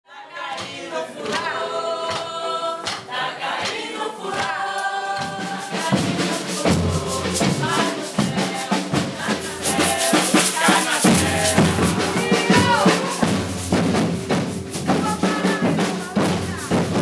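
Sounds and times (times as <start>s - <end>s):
deep drum beat: 5.2s - 17.0s
person singing melody: 5.8s - 16.7s.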